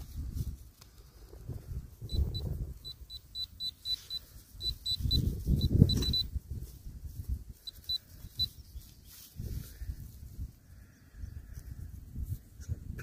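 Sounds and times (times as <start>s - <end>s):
metal detector short high beeps: 2.1s - 6.4s.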